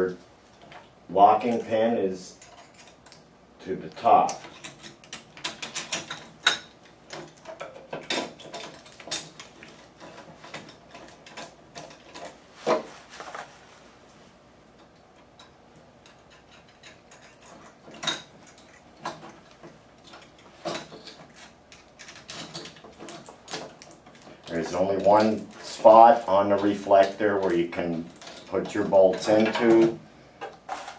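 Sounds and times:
metal clicks and knocks: 4.2s - 12.4s.

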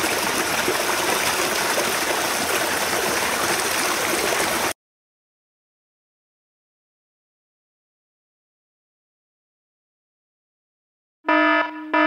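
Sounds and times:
creek water running: 0.0s - 4.8s.

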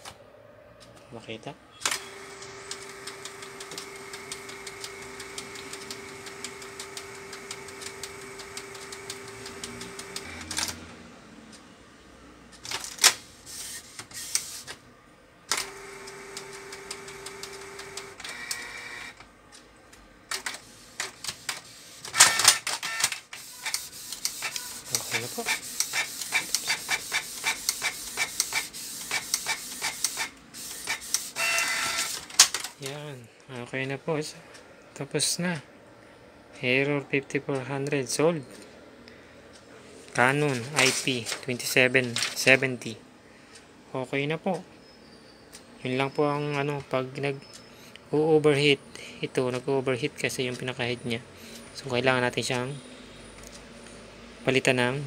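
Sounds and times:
printer clicks: 1.8s - 10.8s, 20.3s - 32.9s
printer motor whine: 1.8s - 11.0s, 15.5s - 19.2s, 20.4s - 32.3s.

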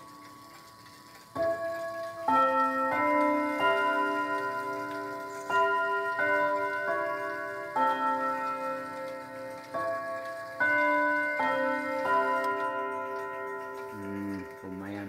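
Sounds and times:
clock chiming a melody on rods: 0.0s - 15.0s
clock ticking: 0.0s - 15.0s.

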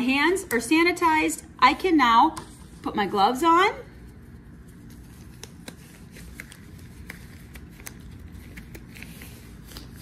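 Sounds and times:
low room hum: 0.0s - 10.0s
gloves rustling: 4.0s - 10.0s.

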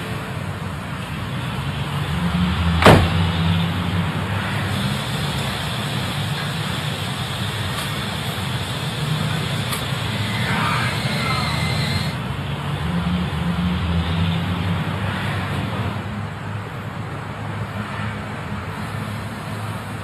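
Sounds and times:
car door shutting: 2.8s - 3.3s.

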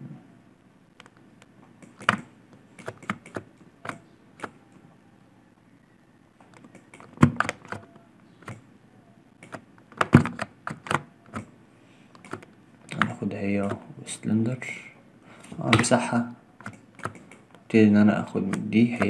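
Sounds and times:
keyboard and mouse clicking: 1.0s - 4.8s, 6.4s - 8.7s, 9.4s - 11.5s, 12.1s - 13.8s, 16.6s - 17.7s, 18.4s - 19.0s.

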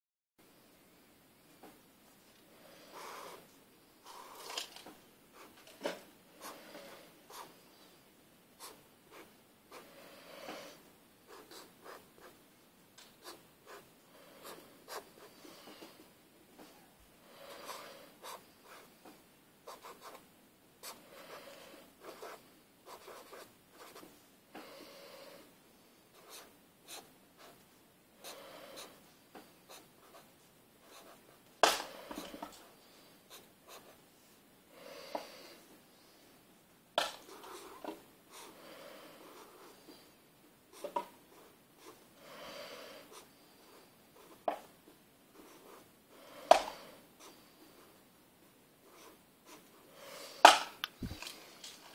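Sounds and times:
marker scratching on paper: 2.9s - 4.5s, 5.4s - 7.5s, 8.6s - 9.9s, 13.1s - 15.8s, 19.7s - 20.2s, 20.8s - 24.2s, 26.2s - 27.6s, 29.7s - 32.4s.

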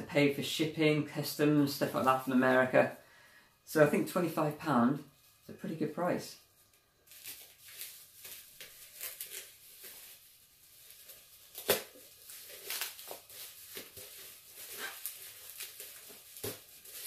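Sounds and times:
paper packaging rustling: 6.6s - 17.0s
sharp paper crackle: 6.7s - 17.0s.

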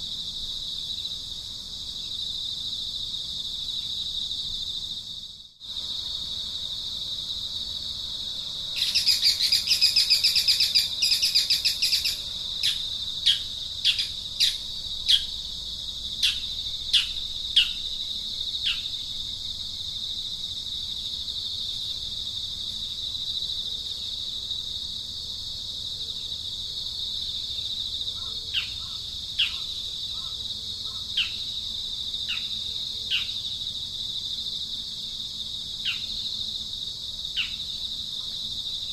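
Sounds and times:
high insect trill: 0.0s - 38.9s
rapid bird twittering: 8.8s - 15.3s.

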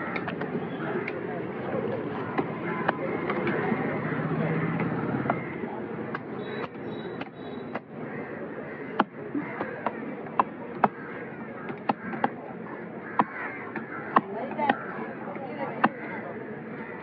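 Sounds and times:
background noise: 0.0s - 17.0s
cleaver chopping on wooden block: 6.1s - 7.9s, 11.7s - 12.4s, 13.2s - 14.9s.

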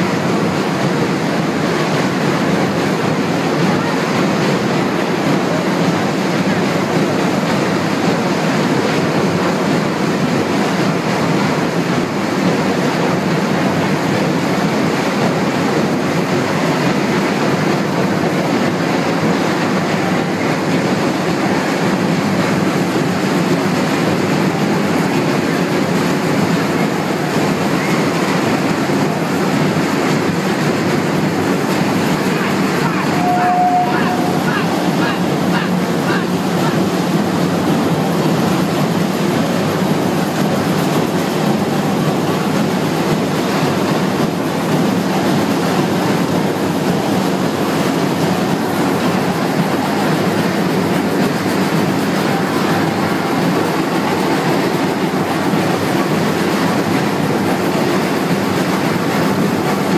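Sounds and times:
band and crowd din: 31.0s - 39.0s.

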